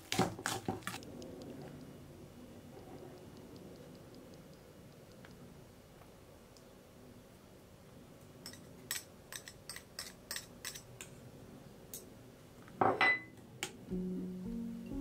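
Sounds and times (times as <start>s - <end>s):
kitchen utensils clicking: 8.4s - 10.9s.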